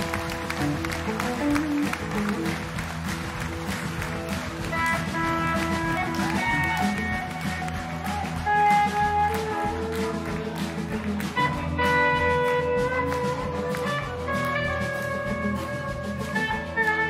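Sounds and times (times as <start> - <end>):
bass guitar: 0.0 - 17.0
drum kit: 0.0 - 17.0
electric guitars sustained notes: 0.0 - 17.0.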